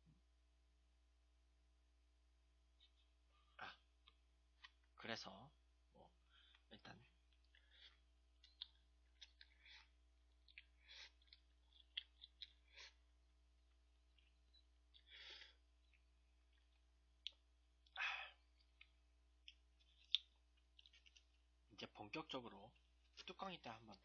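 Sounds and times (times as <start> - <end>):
wet mouth clicks: 7.3 - 13.0, 18.6 - 21.4
noodle slurping: 7.4 - 13.1.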